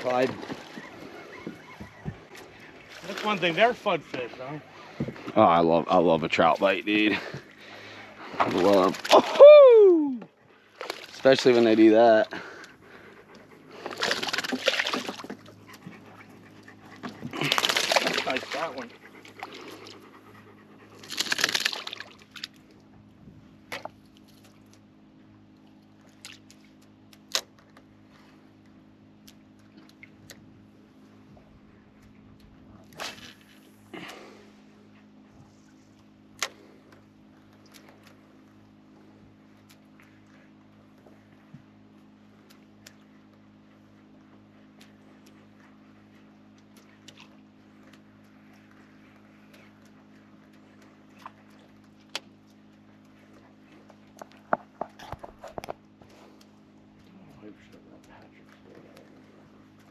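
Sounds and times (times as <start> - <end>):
water splashing: 0.0 - 5.0, 6.4 - 9.8, 10.7 - 13.1, 13.7 - 16.3, 16.9 - 20.0, 21.0 - 22.6
faint low hum: 0.0 - 59.9.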